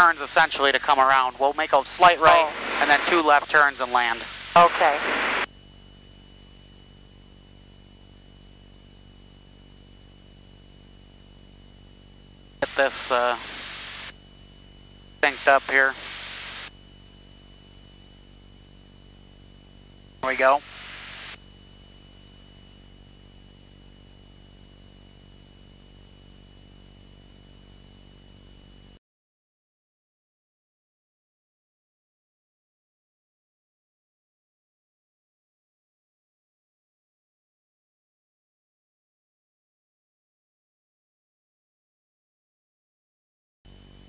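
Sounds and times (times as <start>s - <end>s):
intercom hiss and hum: 0.0s - 5.5s, 12.6s - 14.2s, 15.1s - 24.6s
thin high-pitched whine: 0.0s - 29.0s.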